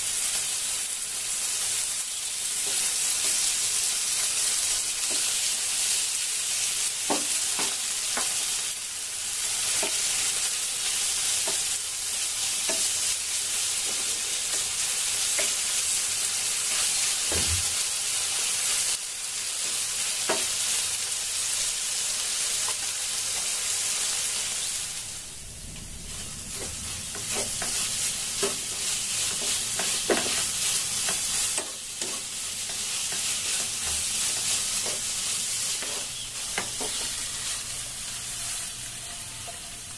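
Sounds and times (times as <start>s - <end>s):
beef sizzling in a pan: 0.0s - 39.9s
utensils clicking and scraping pan: 27.1s - 37.7s.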